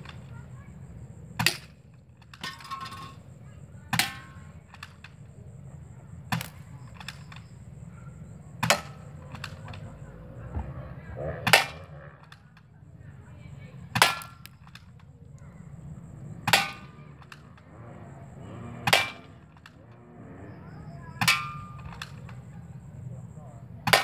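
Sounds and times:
airsoft gun shots: 6.3 - 7.3, 10.5 - 12.2, 13.9 - 14.8, 16.4 - 16.9.

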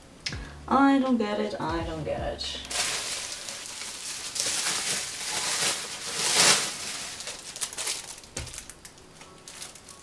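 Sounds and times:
plastic packaging crinkling: 2.6 - 10.0.

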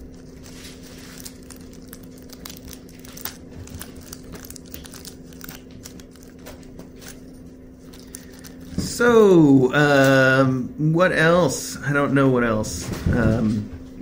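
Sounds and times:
foil ball crackling: 0.0 - 9.0.

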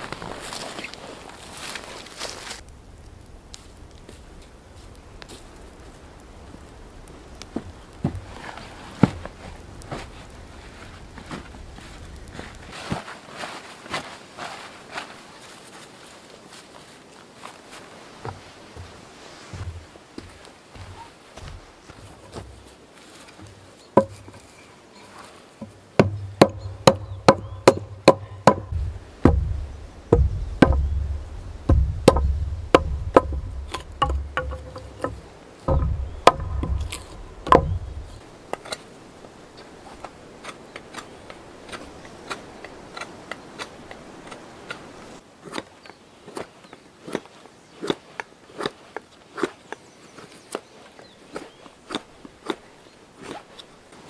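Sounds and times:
axe chopping wood: 26.0 - 38.2
knife carving wood: 26.0 - 38.9.

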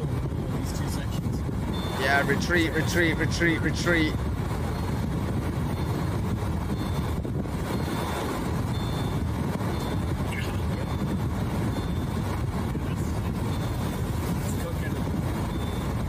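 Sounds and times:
vehicle rumble in wind and rain: 0.0 - 16.0
faint high beeps: 1.7 - 3.2, 7.8 - 12.2, 15.5 - 15.9.

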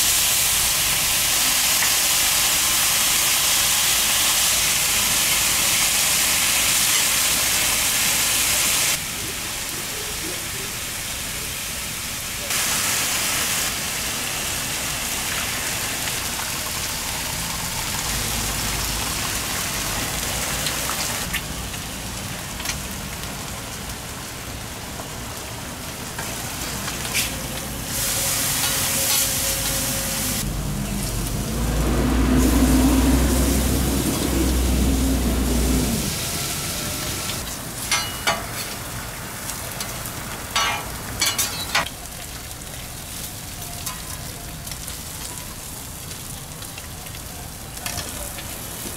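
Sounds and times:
food sizzling on a griddle: 0.0 - 48.9
low rumble: 29.8 - 37.4
metal tongs clicking on griddle: 37.8 - 38.8, 40.6 - 41.9.

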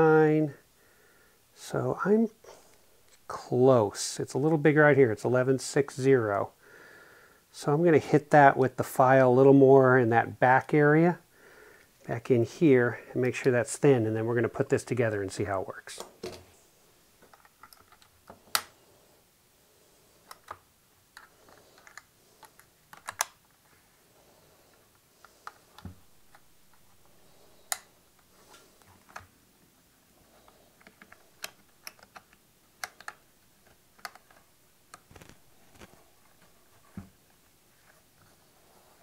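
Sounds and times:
small parts clicking and tapping: 17.2 - 18.7, 20.2 - 23.7, 30.5 - 36.5.

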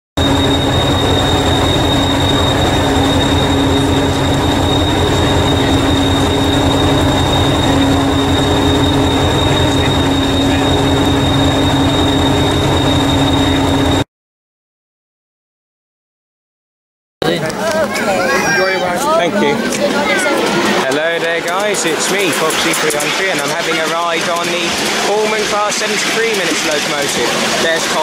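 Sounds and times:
diesel engine running: 0.2 - 14.0, 19.4 - 28.0
high whine: 0.2 - 14.0, 17.8 - 28.0.

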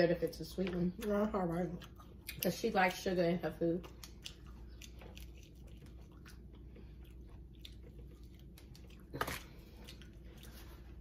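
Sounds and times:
chewing crispy chicken: 3.8 - 11.0.

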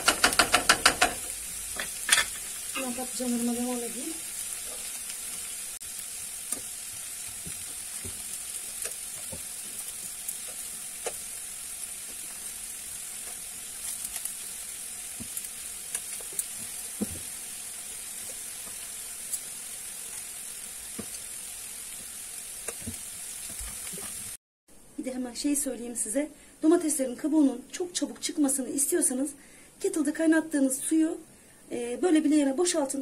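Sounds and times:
sizzling in hot oil: 0.0 - 24.4.

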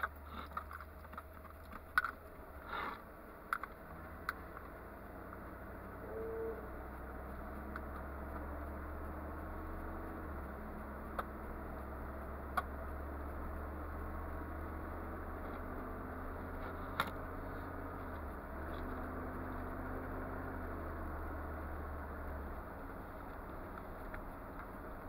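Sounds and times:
car engine and road hum: 0.0 - 25.0.

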